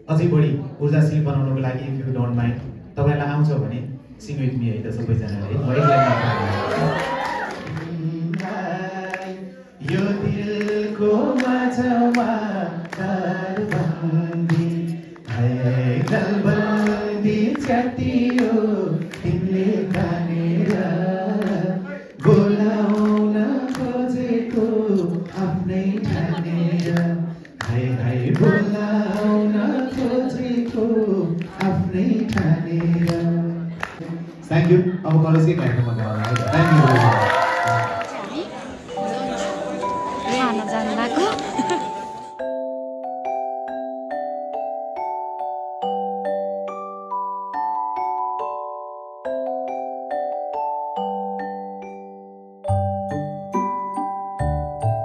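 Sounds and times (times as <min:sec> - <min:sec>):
man singing: 0:07.6 - 0:34.9
steady beat of taps: 0:09.9 - 0:34.0.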